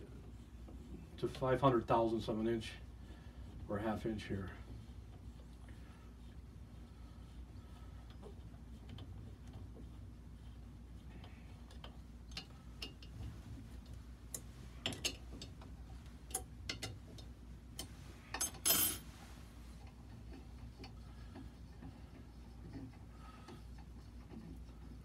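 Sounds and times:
steady low hum: 0:00.0 - 0:25.0
metal tools clicking and tapping: 0:11.7 - 0:13.1, 0:14.8 - 0:15.7, 0:16.3 - 0:19.0.

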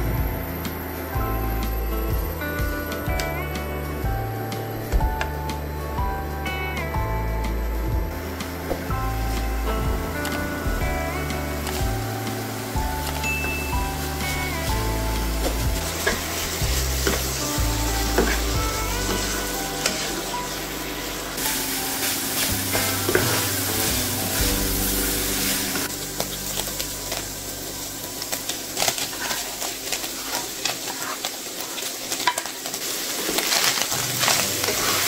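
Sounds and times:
background music: 0:00.0 - 0:30.5
meat sizzling in a skillet: 0:09.0 - 0:35.0
wooden spatula scraping a pan: 0:28.9 - 0:32.5.

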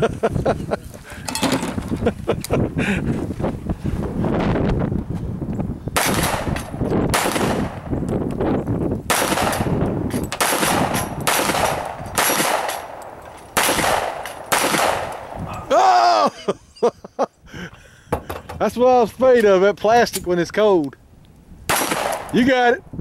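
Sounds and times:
handgun shots: 0:06.0 - 0:07.9, 0:09.1 - 0:15.4, 0:21.7 - 0:22.4.

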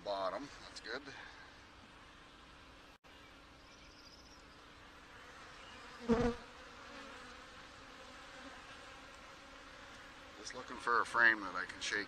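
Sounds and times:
bees humming: 0:01.7 - 0:11.5
bee buzzing close: 0:04.8 - 0:11.8.

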